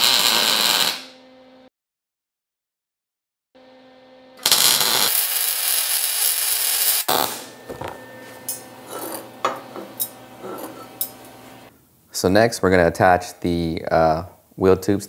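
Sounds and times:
welding arc crackling: 0.0 - 1.1, 4.4 - 11.7
handling of steel parts: 7.7 - 11.4.

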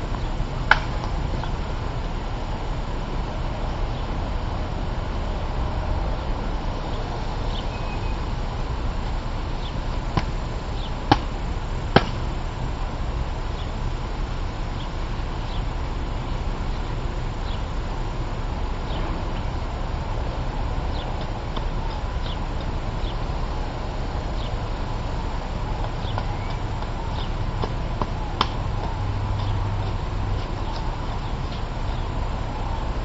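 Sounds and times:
knife chopping wooden pole: 12.0 - 12.2.

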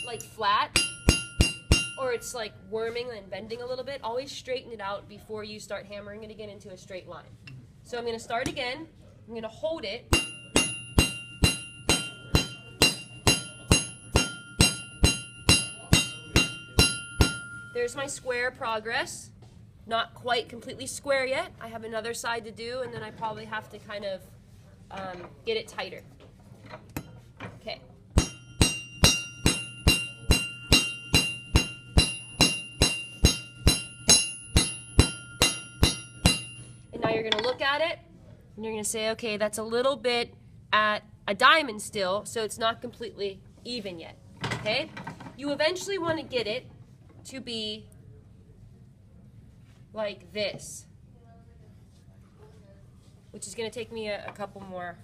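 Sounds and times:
hammer striking metal rod: 0.0 - 2.2, 10.1 - 17.8, 28.2 - 37.5
rail anvil ringing: 0.0 - 2.4, 10.1 - 18.0, 28.2 - 36.9.

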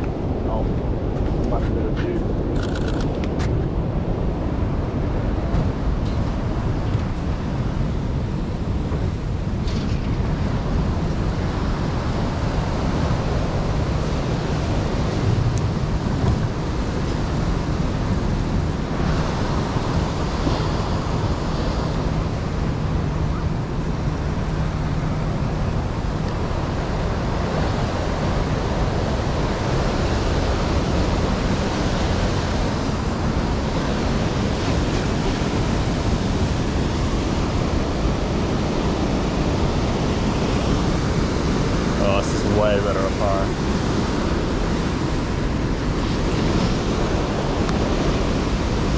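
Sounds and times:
wind buffeting microphone: 0.0 - 48.9.

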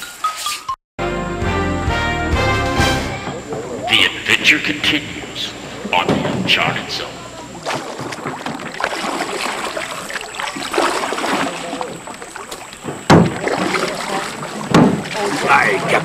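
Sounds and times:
canoe paddle splashing in water: 7.5 - 16.0.

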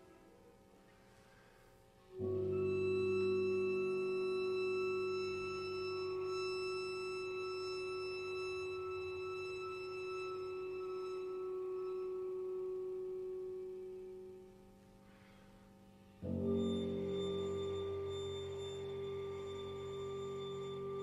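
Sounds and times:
chamber trio music: 16.2 - 21.0.

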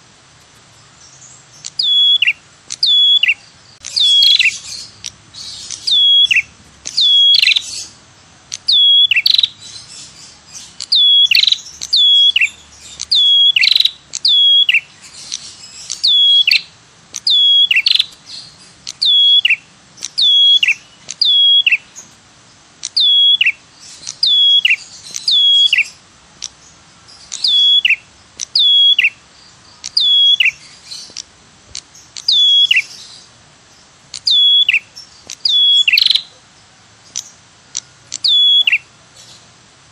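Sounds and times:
bird calls sharp falling notes: 1.6 - 8.0.

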